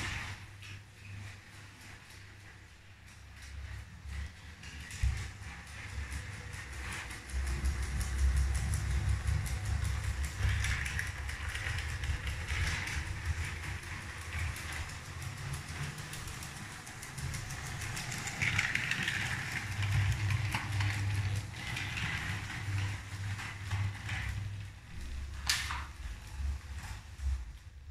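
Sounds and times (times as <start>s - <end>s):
wheels clattering on rails: 0.0s - 27.9s
toy train motor whir: 4.7s - 24.4s.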